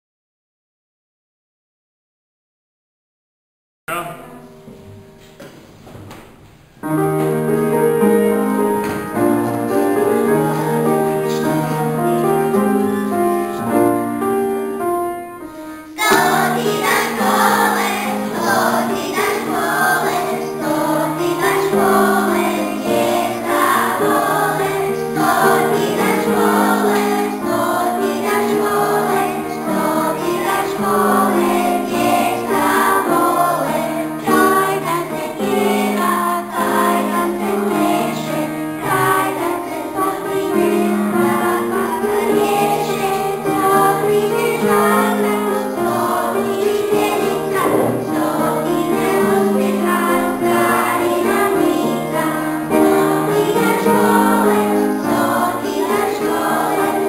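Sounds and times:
children singing in unison: 0:07.3 - 0:14.5, 0:15.8 - 0:57.0.

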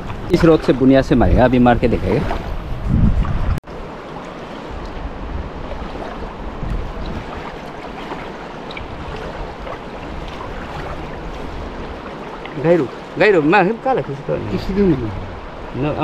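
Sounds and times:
wind buffeting microphone: 0:00.0 - 0:03.6, 0:04.6 - 0:13.2
large river rushing: 0:03.6 - 0:16.0.

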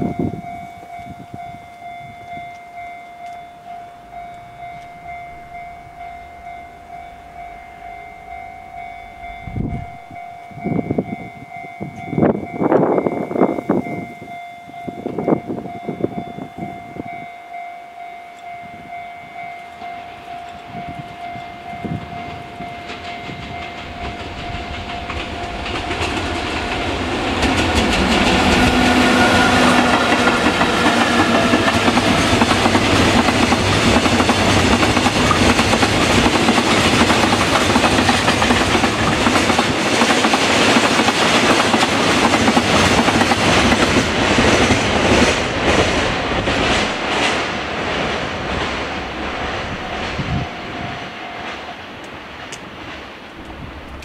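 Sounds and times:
train rumble and rail noise: 0:00.0 - 0:54.0
steady pulsing tone: 0:00.4 - 0:11.1, 0:17.9 - 0:35.3
train horn blasts: 0:20.0 - 0:33.1.

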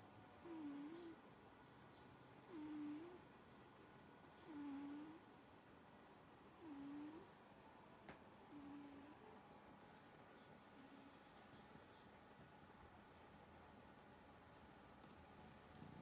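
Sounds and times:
cat snoring: 0:00.4 - 0:01.2, 0:02.4 - 0:03.3, 0:04.4 - 0:05.3, 0:06.5 - 0:07.3, 0:08.5 - 0:09.3.

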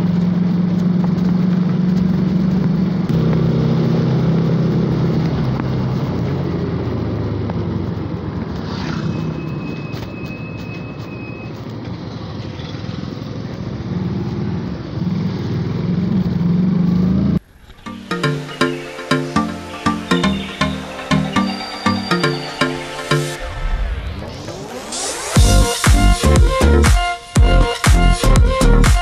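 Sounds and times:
motorcycle engine running: 0:00.0 - 0:10.1, 0:11.6 - 0:17.5
thin high tone: 0:17.8 - 0:25.7.

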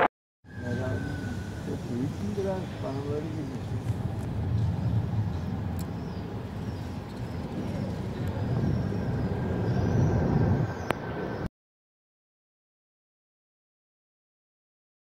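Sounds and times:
airliner jet rumble overhead: 0:00.0 - 0:11.5.

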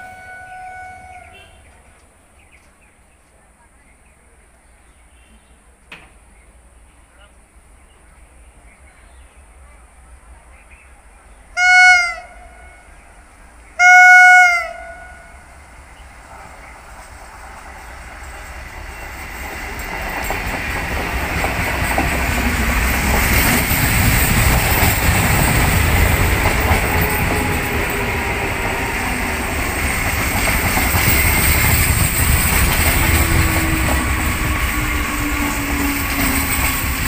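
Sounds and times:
electric train passing: 0:00.0 - 0:03.2, 0:09.5 - 0:37.0.

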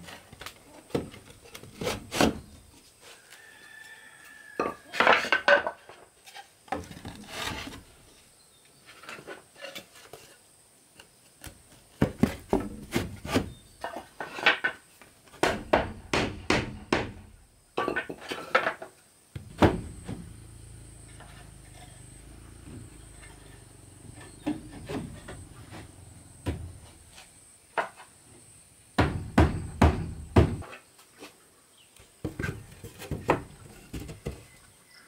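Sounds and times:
wooden boards knocking: 0:15.4 - 0:18.2, 0:19.4 - 0:20.3, 0:29.0 - 0:30.6.

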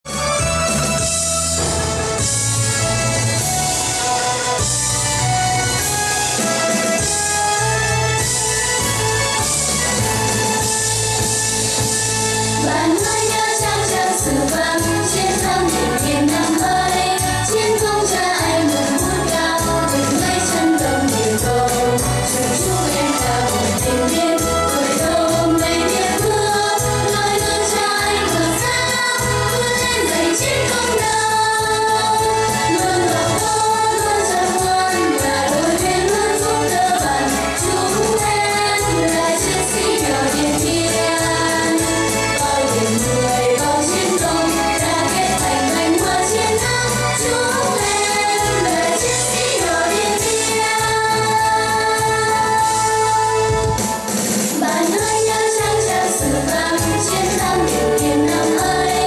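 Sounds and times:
instrumental music with steady beat: 0:00.1 - 0:59.0
children singing together: 0:12.6 - 0:53.6, 0:54.5 - 0:59.0.

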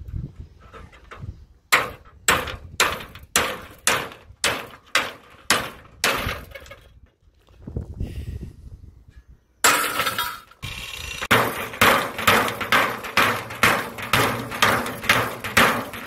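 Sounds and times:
hammer striking metal: 0:11.3 - 0:16.0.

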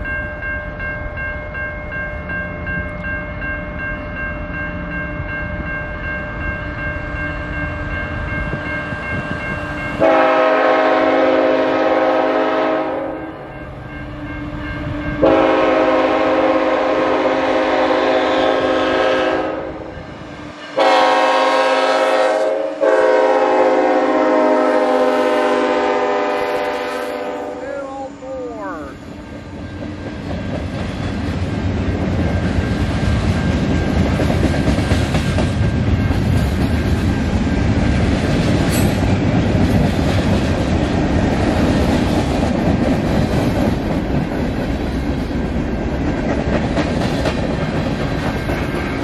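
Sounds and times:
train air horn blasts: 0:10.0 - 0:13.5, 0:15.2 - 0:20.0, 0:20.7 - 0:28.8.

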